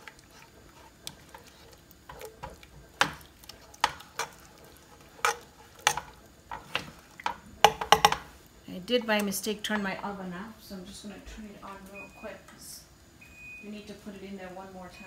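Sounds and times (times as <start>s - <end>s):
wet squelches of sauce: 0.0s - 7.2s
spoon knocking against pot: 5.3s - 8.3s.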